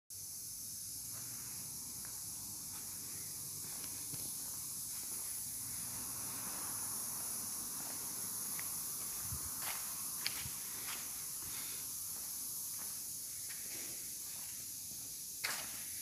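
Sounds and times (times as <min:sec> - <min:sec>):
high-pitched hiss: 0:00.1 - 0:16.0.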